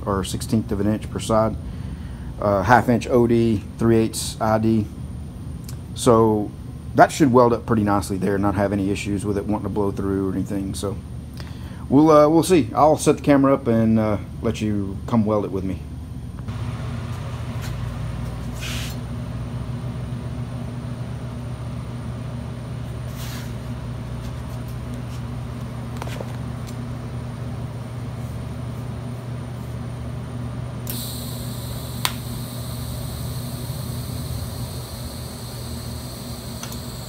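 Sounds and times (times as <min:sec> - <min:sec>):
low shop hum: 0:00.0 - 0:37.0
welding arc hissing: 0:30.9 - 0:37.0
sharp click: 0:32.0 - 0:32.3.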